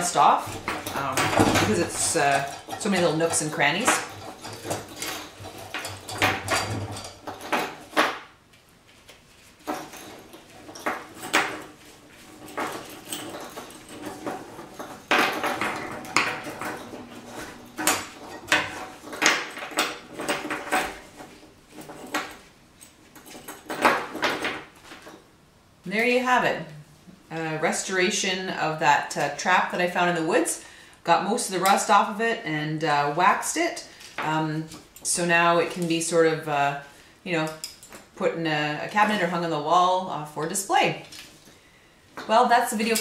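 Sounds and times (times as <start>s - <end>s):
steel chain clinking and rattling: 0.0s - 8.3s, 9.3s - 25.3s, 37.4s - 38.2s, 42.8s - 43.0s.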